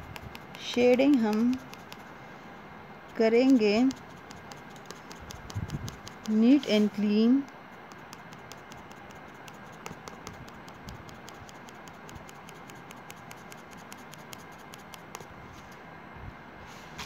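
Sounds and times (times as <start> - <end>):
pencil scratching on paper: 0.0 - 2.1, 3.1 - 7.1, 7.8 - 15.3.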